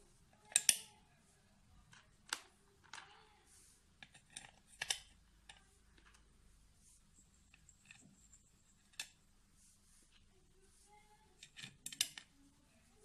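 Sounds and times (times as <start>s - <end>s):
metallic clicks of screws: 0.4s - 0.9s.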